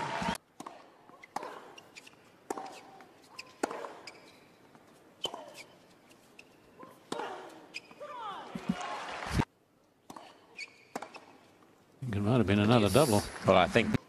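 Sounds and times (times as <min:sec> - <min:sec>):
tennis ball bouncing on court: 0:00.2 - 0:08.9, 0:10.0 - 0:11.4
racket striking ball: 0:00.6 - 0:01.7, 0:02.5 - 0:04.1, 0:10.1 - 0:11.3.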